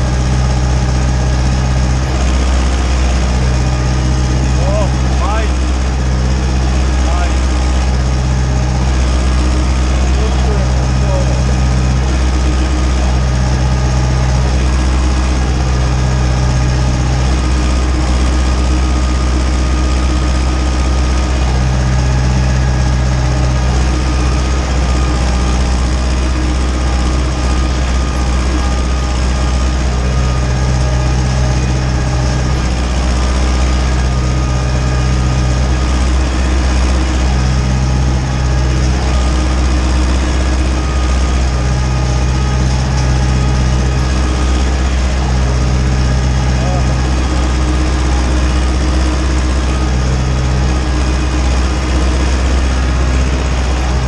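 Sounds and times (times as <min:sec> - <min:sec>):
tractor diesel engine under load: 0:00.0 - 0:54.0.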